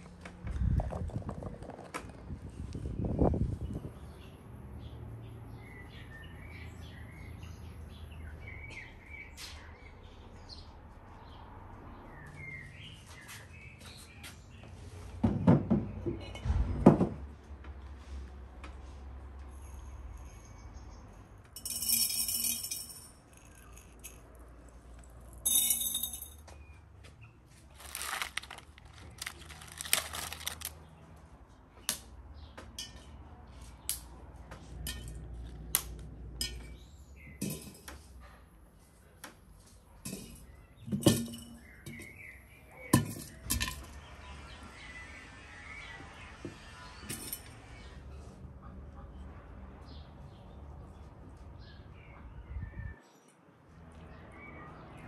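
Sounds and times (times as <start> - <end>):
short rustles: 27.8 - 30.7.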